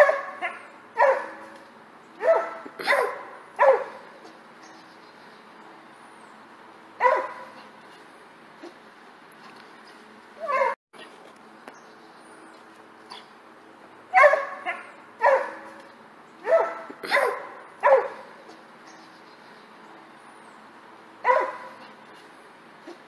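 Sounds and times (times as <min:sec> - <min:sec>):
small dog barking: 0:00.0 - 0:01.6, 0:02.2 - 0:04.0, 0:07.0 - 0:07.6, 0:14.1 - 0:15.7, 0:16.4 - 0:18.2, 0:21.2 - 0:21.8.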